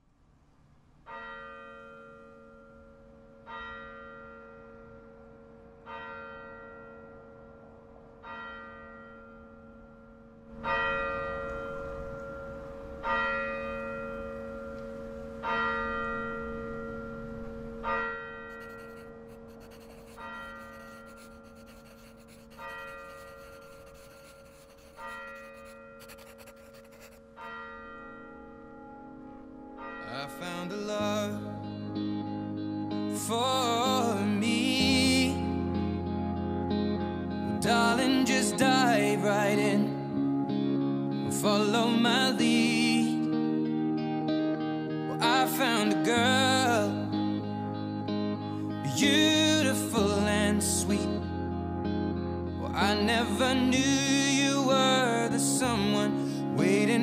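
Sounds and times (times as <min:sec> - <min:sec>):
church bell tolling: 0:01.1 - 0:19.1, 0:27.4 - 0:31.4.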